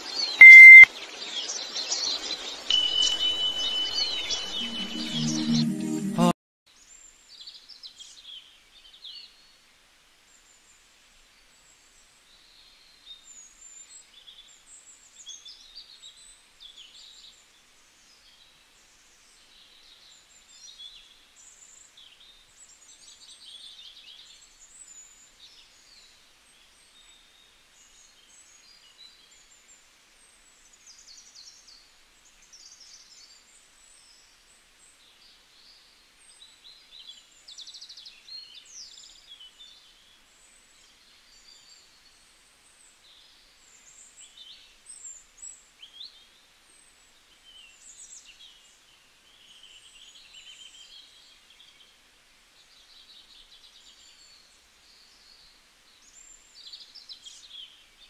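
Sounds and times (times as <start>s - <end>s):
small birds chirping: 0.0s - 0.9s
low steady hiss: 6.7s - 58.0s.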